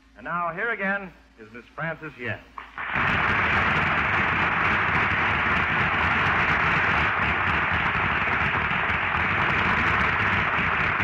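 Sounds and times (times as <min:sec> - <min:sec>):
audience applauding: 0:02.6 - 0:11.0.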